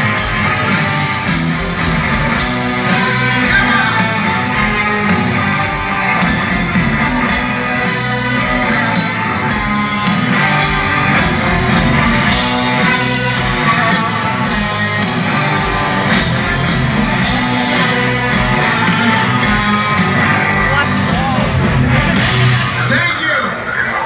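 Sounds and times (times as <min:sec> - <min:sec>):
heavy metal band playing: 0:00.0 - 0:24.0
man singing: 0:02.8 - 0:04.9.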